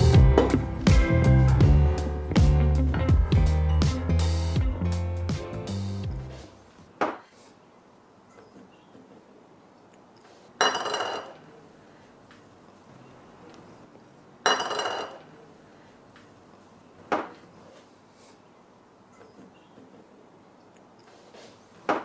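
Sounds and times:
glass bowls clinking on steel bowl: 10.6 - 11.4, 14.4 - 15.2.

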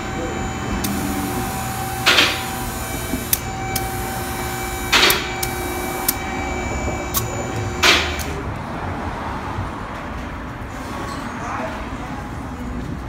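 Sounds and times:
steady hum: 0.0 - 8.4.

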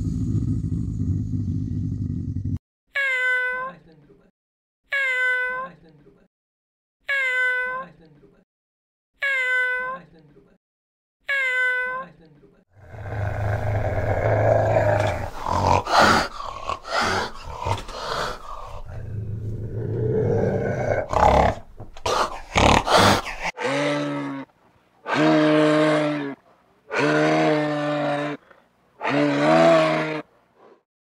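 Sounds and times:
wild cat growling: 0.0 - 2.6, 12.8 - 24.5.

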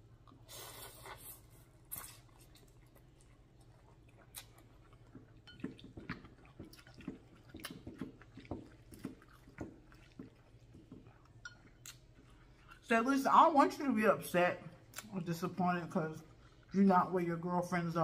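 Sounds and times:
wet chewing: 0.2 - 12.9
slurping noodles: 0.4 - 2.6.

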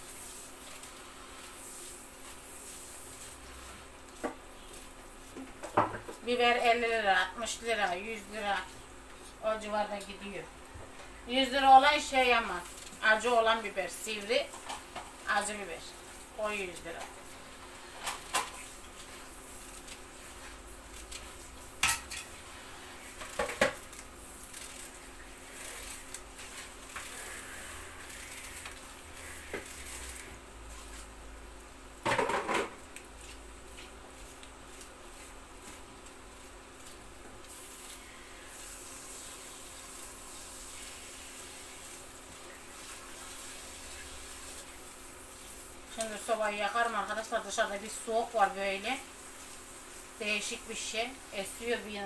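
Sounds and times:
meat sizzling in a pan: 0.0 - 5.4, 34.2 - 52.0
kitchen utensils clinking: 21.8 - 22.4.

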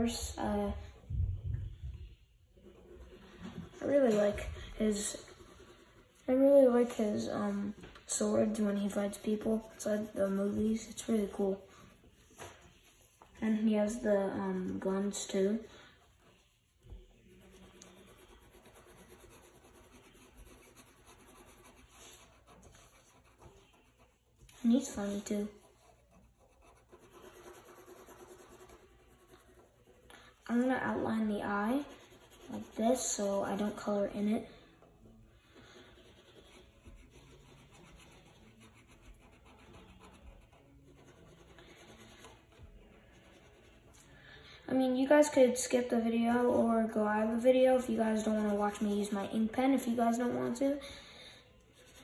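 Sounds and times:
felt-tip marker scratching paper: 2.6 - 7.2, 13.9 - 34.0, 35.5 - 43.9.

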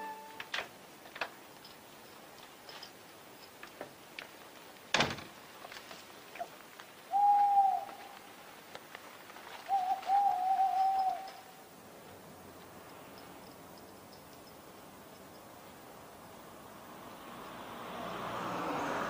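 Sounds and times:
front door shutting: 4.9 - 5.4
owl hooting: 7.1 - 8.2, 9.6 - 11.5.

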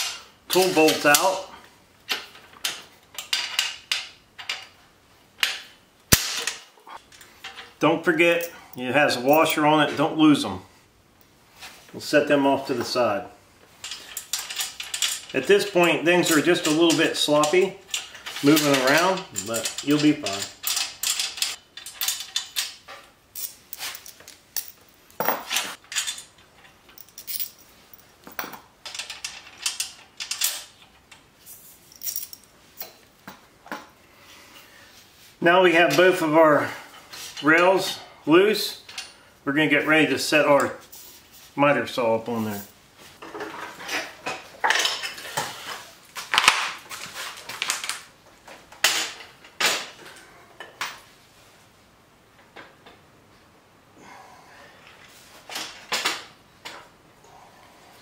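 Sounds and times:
metal rails clinking and rattling: 13.8 - 31.2.

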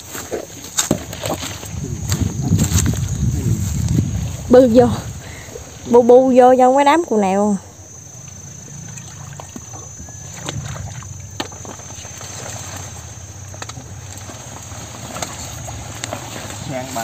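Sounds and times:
leaves rustling: 0.0 - 6.6, 7.7 - 17.0
water sloshing: 7.7 - 17.0
small knocks and splashes: 9.0 - 12.9.

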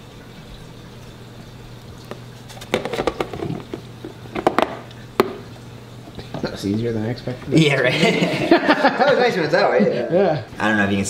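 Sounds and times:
low steady hum: 0.0 - 11.0
plastic tub clattering on glass: 2.6 - 5.5.

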